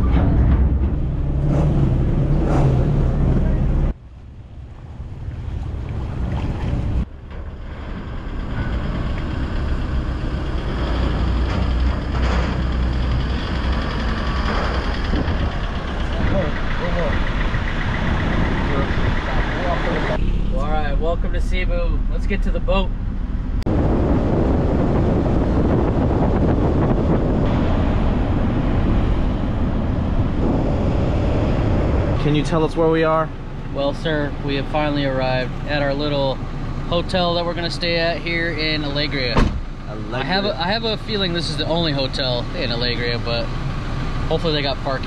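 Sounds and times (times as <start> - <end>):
wind buffeting microphone: 0.0 - 20.6, 22.9 - 36.8
truck engine low rumble: 0.0 - 45.0
wind on microphone: 13.2 - 16.7, 23.2 - 32.3.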